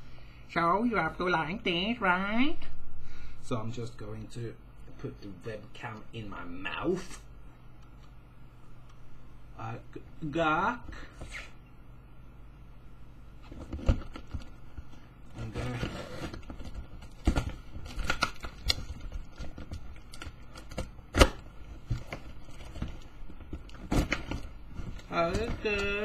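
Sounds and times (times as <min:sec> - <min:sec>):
rustling: 0:13.4 - 0:26.0
cardboard flaps tearing: 0:15.4 - 0:26.0.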